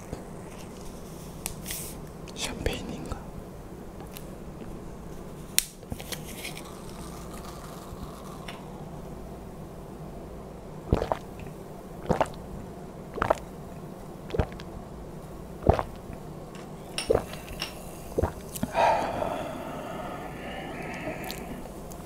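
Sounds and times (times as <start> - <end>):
person gulping a drink: 10.9 - 12.4, 13.1 - 13.5, 14.3 - 14.7, 15.6 - 16.2, 17.0 - 22.0
long breathy exhale: 17.2 - 21.8.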